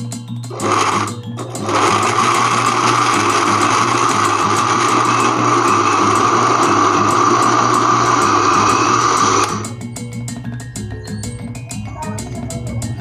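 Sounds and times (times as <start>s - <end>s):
blender motor running: 0.5s - 9.8s.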